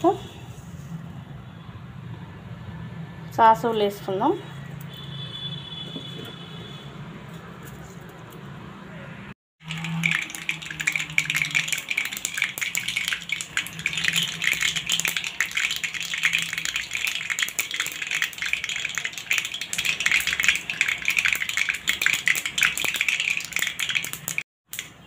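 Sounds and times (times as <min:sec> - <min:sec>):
seeds spluttering in hot oil: 0:09.6 - 0:25.0.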